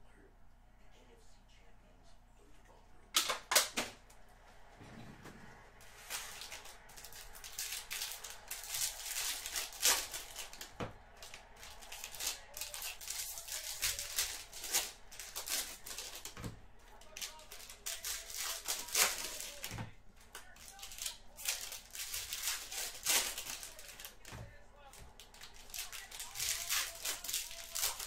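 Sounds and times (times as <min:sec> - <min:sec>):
cards and wrappers rustling: 0:05.6 - 0:28.0.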